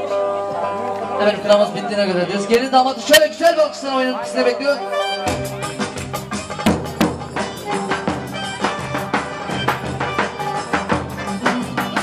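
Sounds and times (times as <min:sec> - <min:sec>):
reedy wind instrument melody: 0:00.0 - 0:12.0
steady drum beat: 0:05.2 - 0:12.0.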